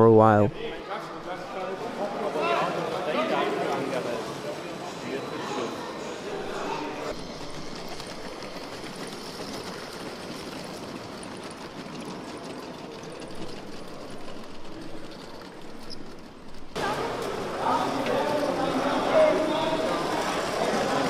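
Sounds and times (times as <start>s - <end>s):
plastic wheels clattering on track: 7.1s - 21.0s.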